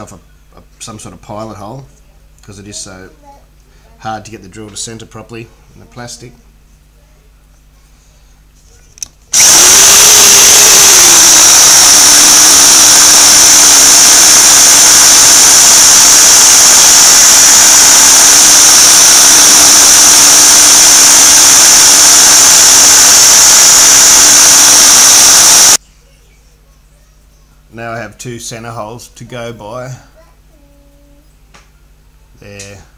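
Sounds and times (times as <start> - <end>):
drill press whining: 9.3 - 25.8.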